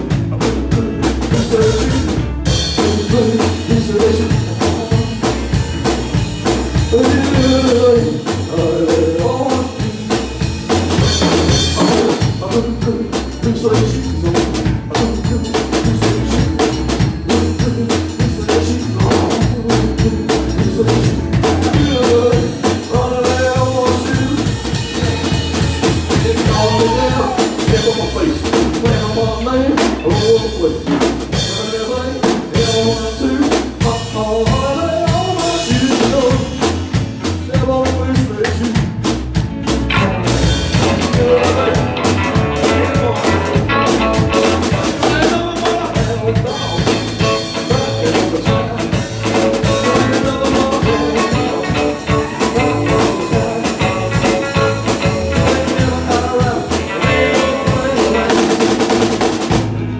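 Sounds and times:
live rock band playing: 0.0 - 59.9
steady drum beat: 0.0 - 59.9.

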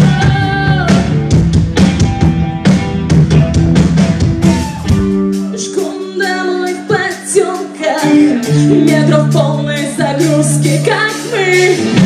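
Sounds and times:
woman singing: 0.0 - 1.2, 5.5 - 12.0
bass guitar: 0.0 - 12.0
drum kit: 0.0 - 12.0
electric guitar: 0.0 - 12.0.

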